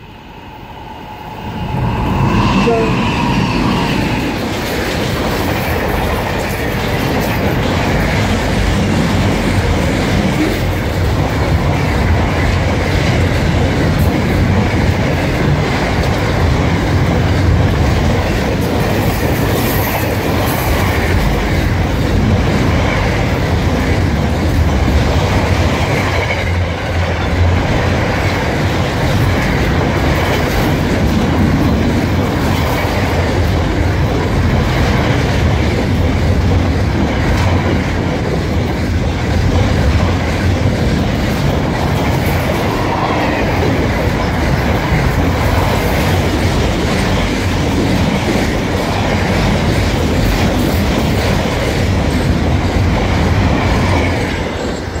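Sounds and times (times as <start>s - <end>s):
freight train wheels on rails: 0.0s - 55.0s.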